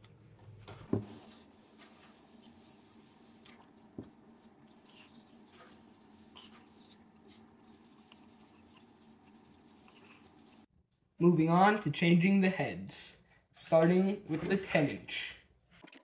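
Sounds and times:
duster brushing wooden drum shell: 0.9s - 10.7s.

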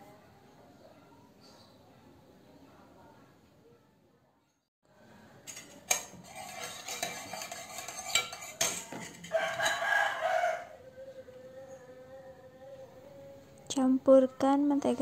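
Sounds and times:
spatula scraping metal bowl: 5.5s - 10.1s.

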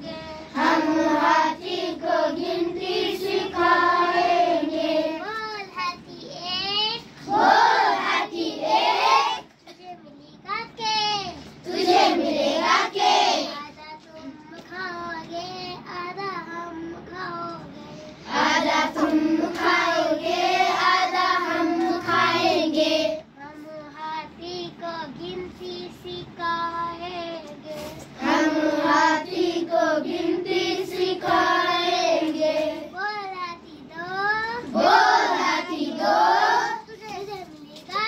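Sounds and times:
girl singing: 12.8s - 38.0s.

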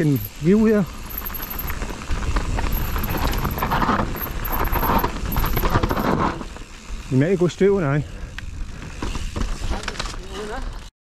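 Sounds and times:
tyres on dirt: 0.0s - 7.4s
bike chain and frame rattling: 0.0s - 10.9s.

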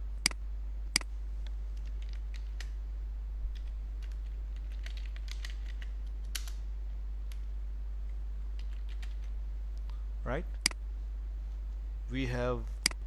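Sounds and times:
steady low hum: 0.0s - 13.0s
computer keyboard typing: 1.8s - 2.7s, 3.5s - 6.5s, 8.6s - 9.4s.

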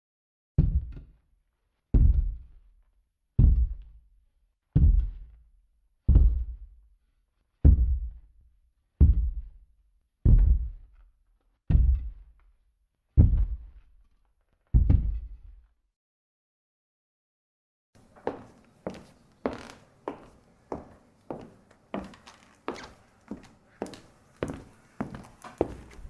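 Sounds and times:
heavy footsteps: 2.0s - 2.6s, 3.4s - 3.9s, 4.8s - 5.4s, 6.1s - 6.7s, 7.6s - 8.2s, 9.0s - 9.6s, 10.3s - 10.9s, 11.7s - 12.3s, 13.2s - 13.8s, 14.7s - 15.6s, 18.0s - 26.0s.

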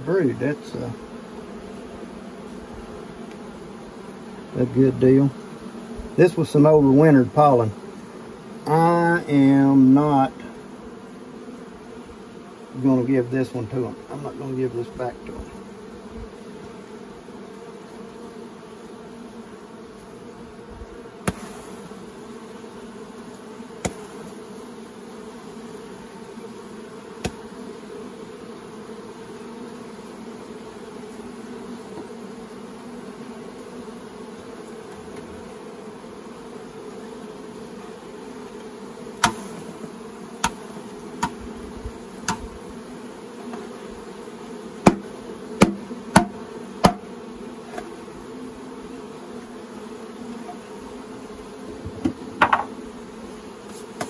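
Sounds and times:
honey bees buzzing: 0.0s - 54.0s
wooden hive parts knocking: 23.8s - 24.1s, 27.2s - 27.4s, 39.2s - 39.6s, 40.4s - 40.6s, 41.2s - 41.5s, 42.2s - 42.6s, 44.8s - 47.1s, 51.7s - 52.8s.

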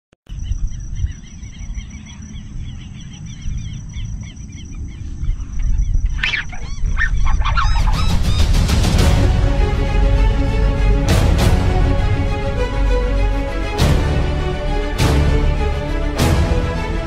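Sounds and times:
chirping animal calls: 0.4s - 8.6s.

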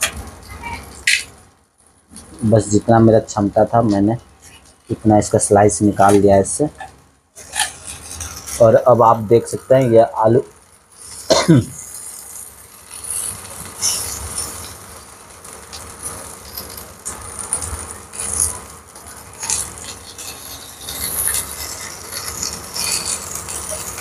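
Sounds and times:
oil crackling: 0.0s - 24.0s
potato slices scraping a pan: 7.4s - 9.2s, 11.0s - 14.9s, 15.6s - 24.0s.

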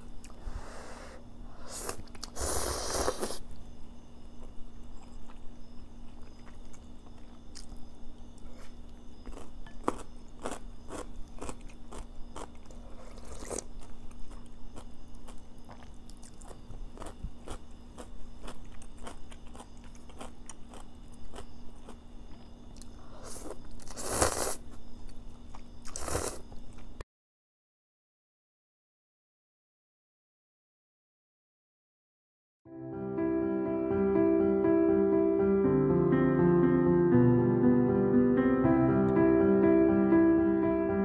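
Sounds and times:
noodles slurp: 1.7s - 3.6s, 23.2s - 24.6s
crunchy bites and wet chewing: 1.8s - 27.0s.

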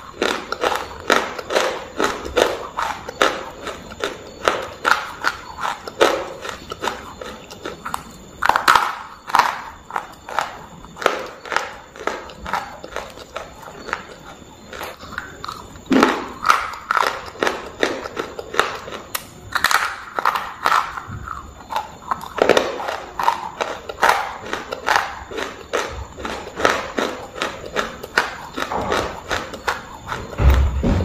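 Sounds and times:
low thud: 30.4s - 31.0s.

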